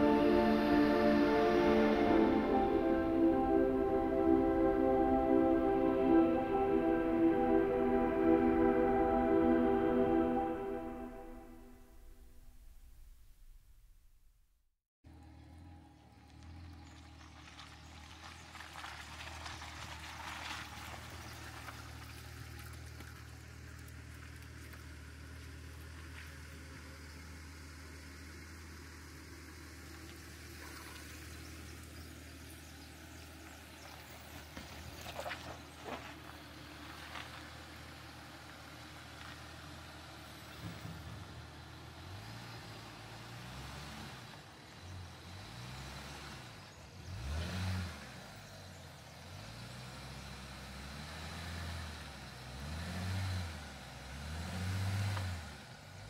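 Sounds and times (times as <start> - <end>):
truck engine running low: 15.1 - 56.0.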